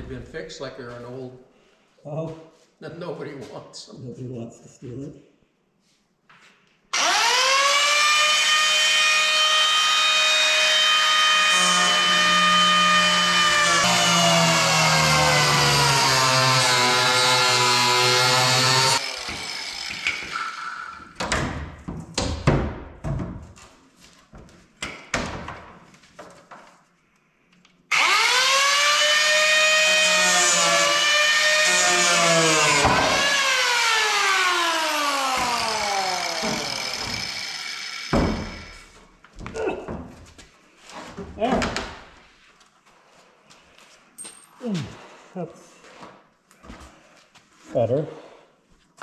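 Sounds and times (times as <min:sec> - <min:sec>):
power tool cutting fiberglass: 0:07.0 - 0:21.1, 0:27.9 - 0:39.0
knocks and handling noises: 0:21.2 - 0:27.0.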